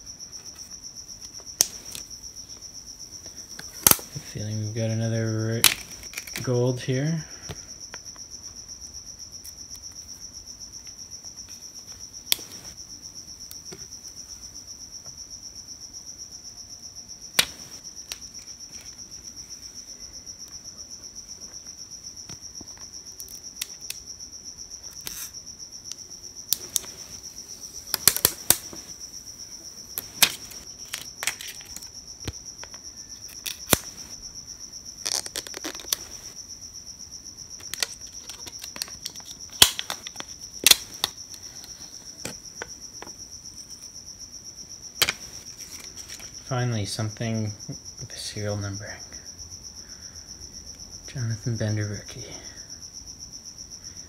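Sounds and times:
cricket chirping: 0:00.0 - 0:54.0
trading cards clicking and rustling: 0:05.5 - 0:06.6, 0:30.0 - 0:31.9, 0:35.1 - 0:36.3, 0:37.6 - 0:41.1.

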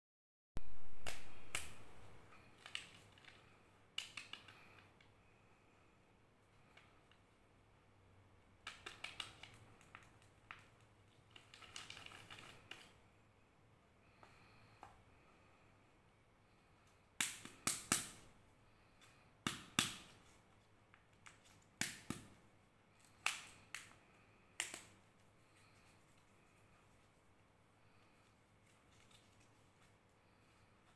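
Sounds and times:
plastic shells clicking: 0:02.6 - 0:05.1, 0:08.6 - 0:13.0.

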